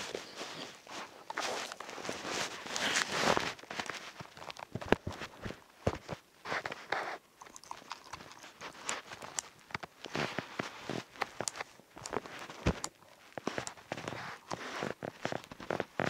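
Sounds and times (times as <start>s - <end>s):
slime squelching: 6.9s - 15.0s.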